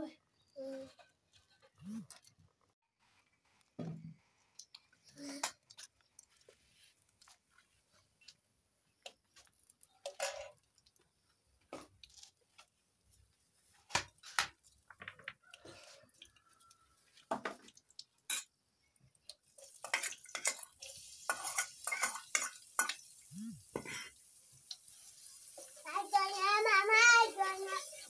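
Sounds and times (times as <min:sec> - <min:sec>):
metal pots clinking: 0:09.9 - 0:10.7, 0:19.7 - 0:23.0
food sizzling in hot oil: 0:16.4 - 0:28.0.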